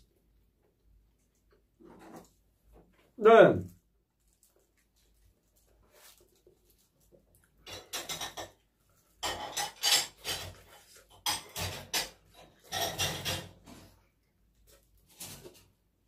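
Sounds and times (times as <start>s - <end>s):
utensils clinking against dishes: 9.2s - 13.6s.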